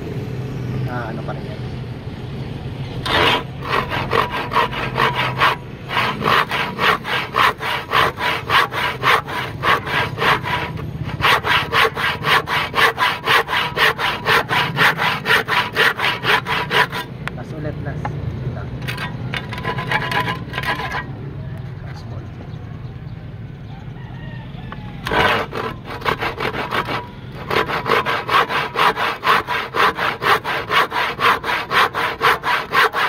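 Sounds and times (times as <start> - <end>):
handsaw cutting wooden board: 3.0 - 17.1, 18.8 - 21.1, 25.0 - 33.0.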